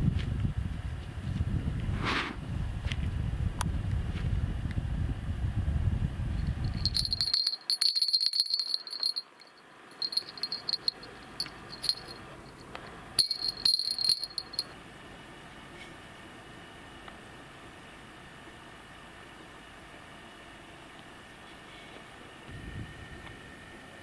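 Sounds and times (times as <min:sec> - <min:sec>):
small bell jingling: 0:06.4 - 0:14.7.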